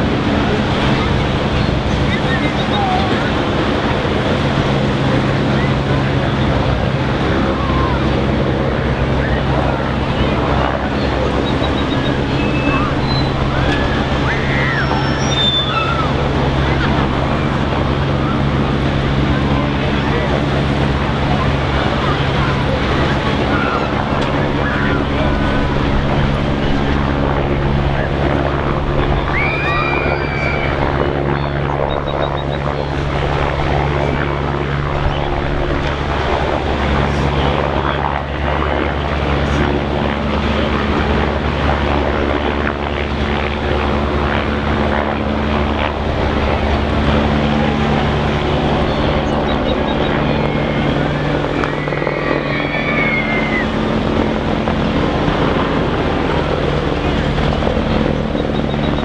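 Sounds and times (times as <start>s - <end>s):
broad even noise: 0.0s - 59.0s
low engine drone: 0.0s - 59.0s
high rising and falling call: 11.4s - 16.7s, 29.0s - 32.6s, 48.8s - 53.7s.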